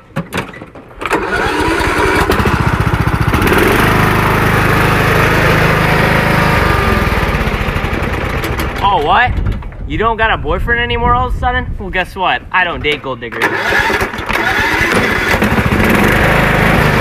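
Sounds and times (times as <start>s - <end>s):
riding lawn mower engine: 0.9s - 9.8s, 13.4s - 17.0s.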